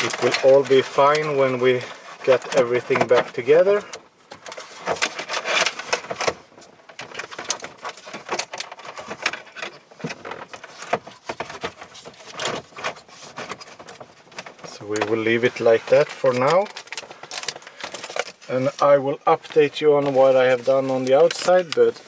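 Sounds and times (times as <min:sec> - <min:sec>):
plastic parts clicking and scraping: 0:00.0 - 0:22.0
wires rustling: 0:00.0 - 0:22.0.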